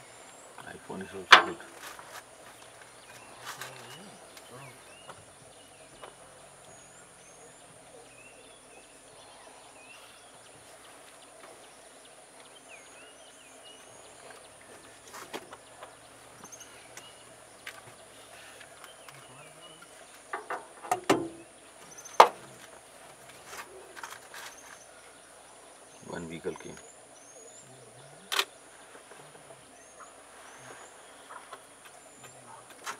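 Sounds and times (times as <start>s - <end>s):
sharp knocks and clicks: 20.3s - 21.4s.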